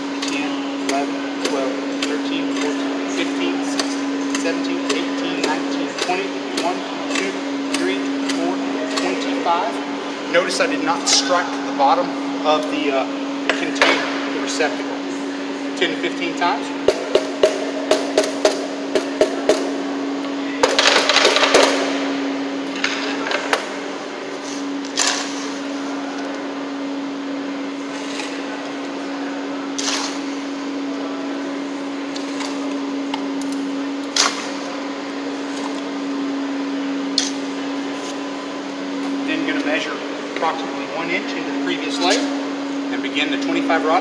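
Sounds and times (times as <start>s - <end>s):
steady hum: 0.0s - 44.0s
scoop scraping concrete: 29.8s - 30.3s.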